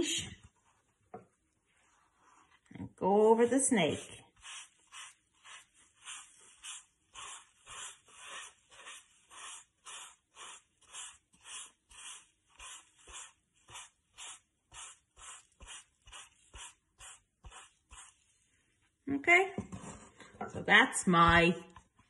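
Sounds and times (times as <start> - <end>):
wet sponge swishing on paper: 1.6 - 2.7, 3.7 - 18.9.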